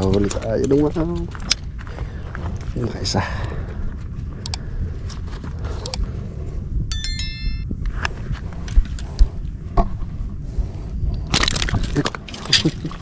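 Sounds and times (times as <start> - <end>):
low wind rumble: 0.0 - 13.0
small bell ringing: 6.9 - 7.8.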